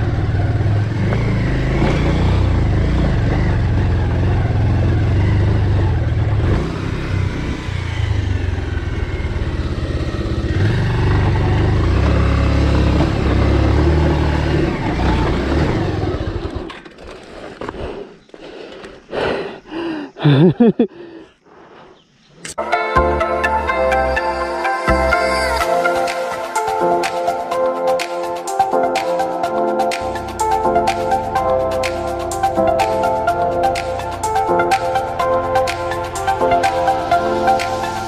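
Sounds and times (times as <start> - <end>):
motorcycle engine rumbling: 0.0 - 22.6.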